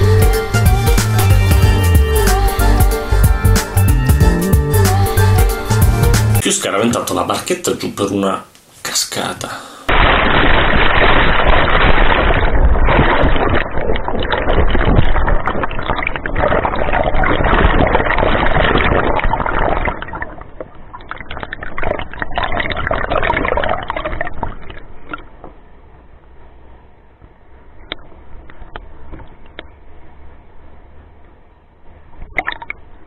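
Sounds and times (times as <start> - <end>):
river water rushing underwater: 9.9 - 25.4.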